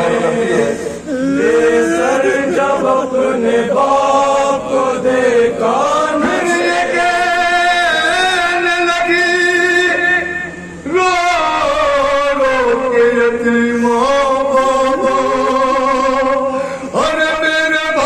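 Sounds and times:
men chanting a lament: 0.0 - 18.0.

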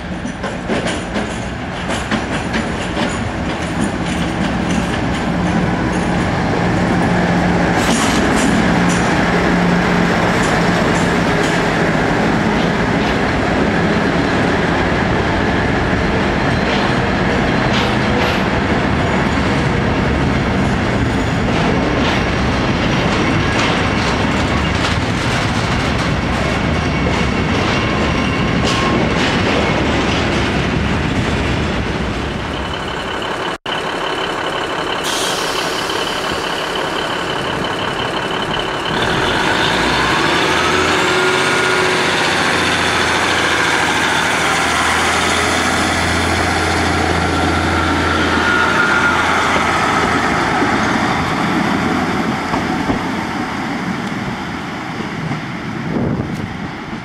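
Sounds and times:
diesel train engines revving: 0.0 - 57.0.

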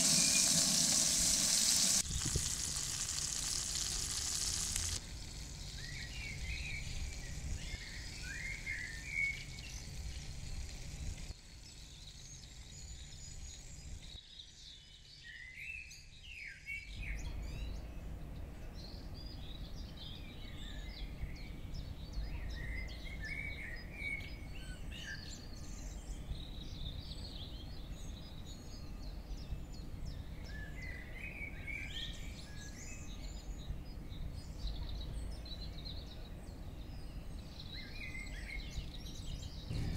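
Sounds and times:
birds chirping and singing: 18.8 - 39.9
low background rumble: 39.4 - 39.9.

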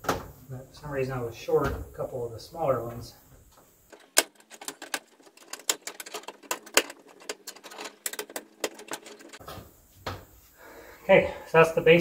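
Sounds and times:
hands pressing grommets clicking: 3.9 - 9.4.

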